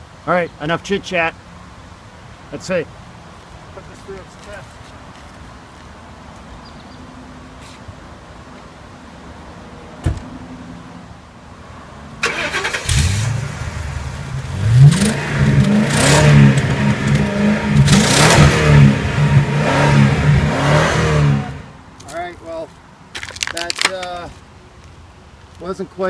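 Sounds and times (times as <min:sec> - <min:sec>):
thump: 0:10.0 - 0:10.3
car exhaust idling and revving: 0:12.9 - 0:21.8.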